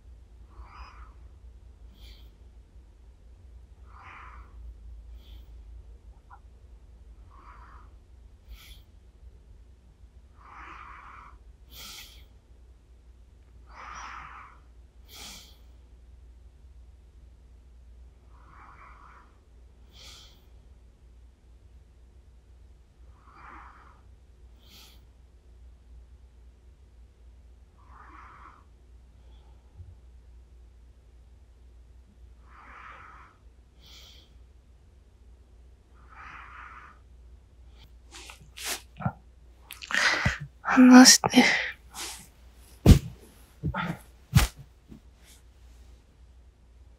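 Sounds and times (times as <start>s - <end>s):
faint low hum: 0.0s - 46.9s
person breathing softly: 1.8s - 2.6s, 3.9s - 5.9s, 7.2s - 9.1s, 11.7s - 12.4s, 33.0s - 34.5s, 39.8s - 44.5s.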